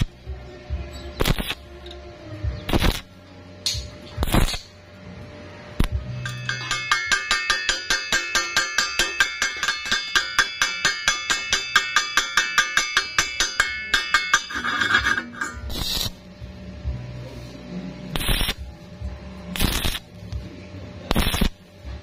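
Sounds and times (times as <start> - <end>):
welding arc crackle: 1.2 - 1.6, 2.7 - 3.1, 3.7 - 4.7, 15.6 - 16.3, 18.1 - 18.7, 19.5 - 20.3, 21.1 - 21.6
hammer tapping on steel: 6.2 - 15.7.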